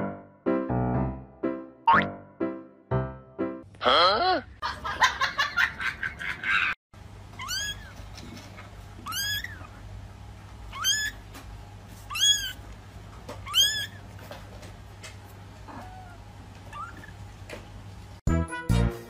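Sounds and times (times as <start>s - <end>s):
kitten meowing: 7.4s - 8.0s, 9.0s - 9.7s, 10.7s - 11.2s, 12.1s - 12.6s, 13.4s - 14.0s, 15.7s - 17.1s.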